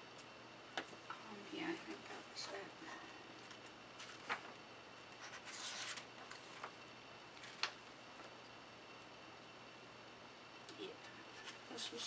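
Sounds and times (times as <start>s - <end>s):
paper pages rustling: 3.4s - 8.3s.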